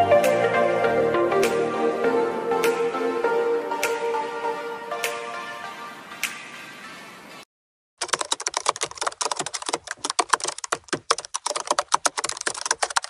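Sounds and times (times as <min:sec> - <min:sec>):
intro music: 0:00.0 - 0:07.2
keyboard typing clicks: 0:08.0 - 0:13.0.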